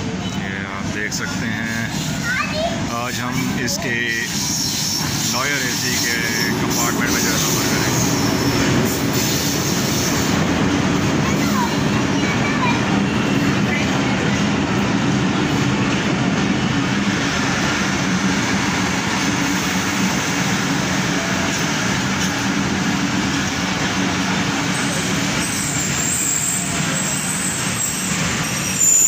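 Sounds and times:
train wheels rumbling on rails: 0.0s - 29.0s.

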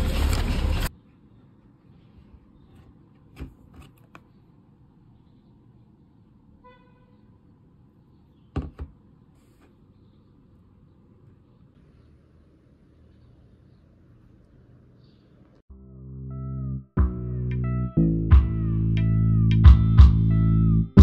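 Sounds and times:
plastic bottle taps and knocks: 8.6s - 9.0s.

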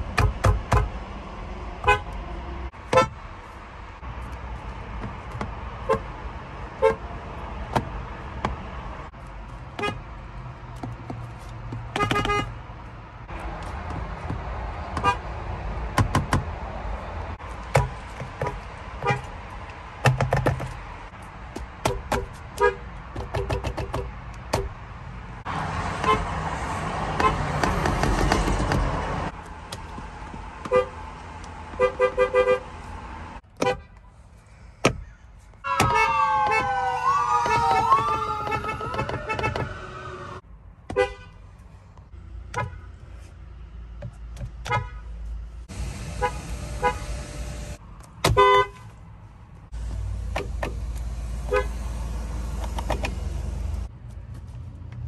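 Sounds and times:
car horns honking: 1.8s - 2.2s, 2.8s - 3.2s, 6.8s - 7.0s, 11.9s - 12.6s, 15.0s - 15.2s, 17.7s - 19.3s, 21.9s - 22.9s, 26.0s - 26.4s, 27.1s - 27.8s, 30.6s - 31.0s, 31.7s - 32.8s, 35.6s - 36.8s, 37.4s - 41.4s, 42.5s - 42.9s, 45.7s - 48.9s, 50.6s - 52.0s.

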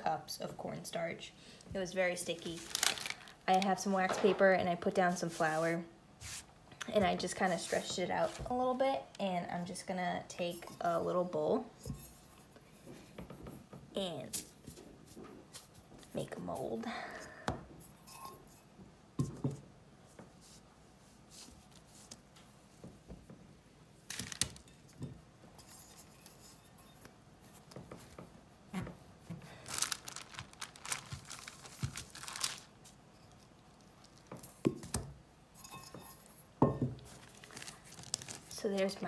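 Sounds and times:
wax paper crinkling: 2.0s - 3.9s, 24.1s - 24.6s, 29.4s - 34.6s, 37.1s - 39.0s.

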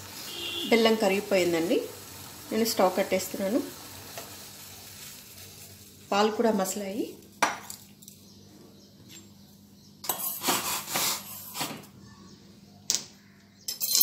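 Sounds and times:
spoon clinking and scraping pot: 10.0s - 10.5s.

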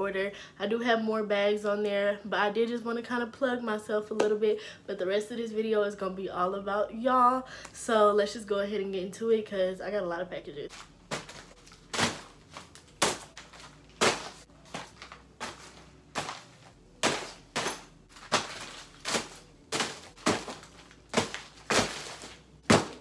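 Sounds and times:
parcels thudding onto a bed: 11.1s - 23.0s.

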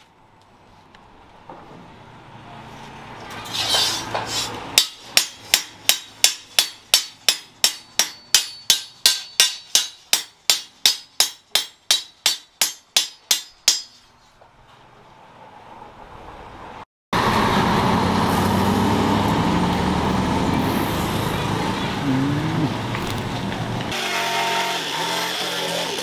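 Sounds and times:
hammer striking steel on anvil: 4.8s - 14.0s.

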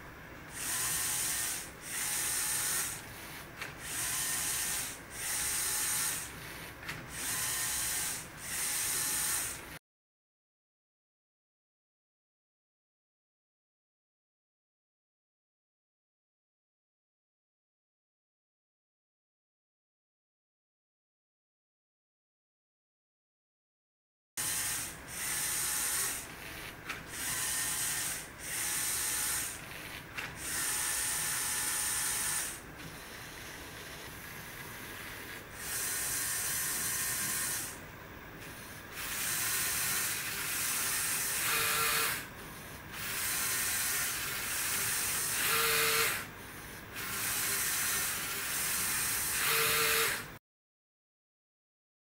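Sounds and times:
motors and gears whirring: 0.5s - 9.8s, 24.4s - 37.8s, 38.4s - 50.3s.

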